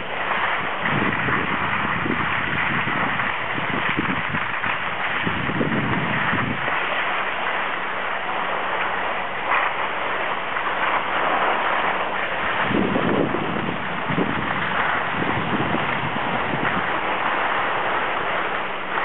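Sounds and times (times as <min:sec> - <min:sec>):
skis hissing over snow: 0:00.0 - 0:19.0
wind rushing over microphone: 0:00.0 - 0:19.0.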